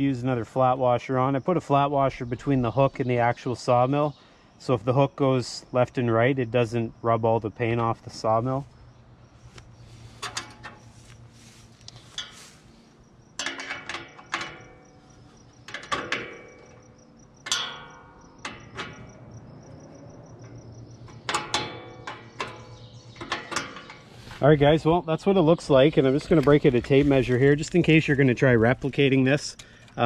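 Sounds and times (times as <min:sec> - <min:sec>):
insects chirping: 0:00.0 - 0:30.0
metal clinks and clanks: 0:12.1 - 0:12.6, 0:13.3 - 0:19.3, 0:20.4 - 0:24.1.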